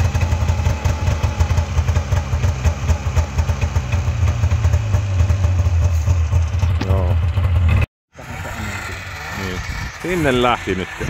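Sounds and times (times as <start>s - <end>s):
snowmobile engine idling: 0.0s - 11.0s.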